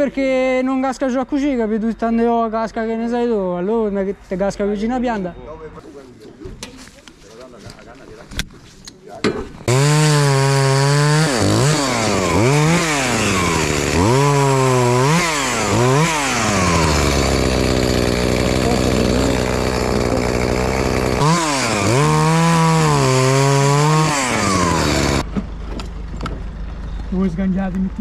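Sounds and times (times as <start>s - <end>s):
chainsaw revving and idling: 9.6s - 25.3s.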